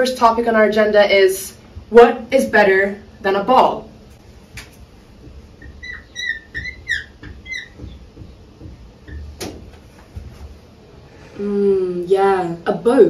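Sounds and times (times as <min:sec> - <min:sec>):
marker squeaking on whiteboard: 0:05.3 - 0:09.4.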